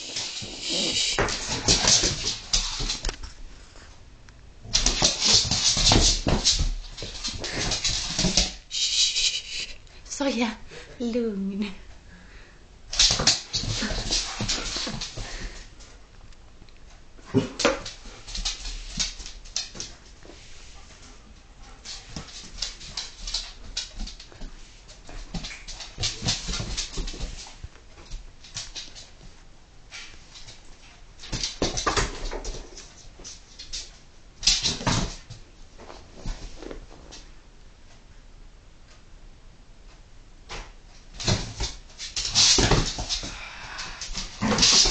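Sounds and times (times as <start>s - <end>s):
dogs whining playfully: 0.0s - 2.0s, 8.7s - 9.8s.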